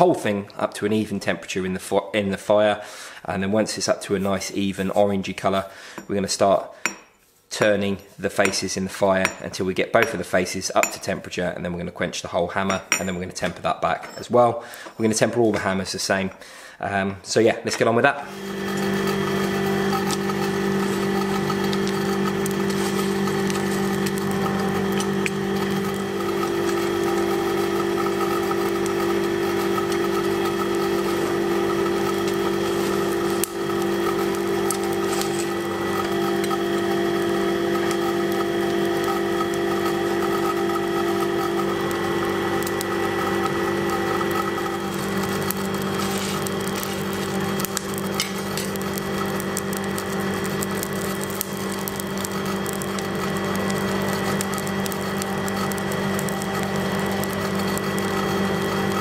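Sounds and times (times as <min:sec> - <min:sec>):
electric blower hum: 0:18.3 - 0:59.0.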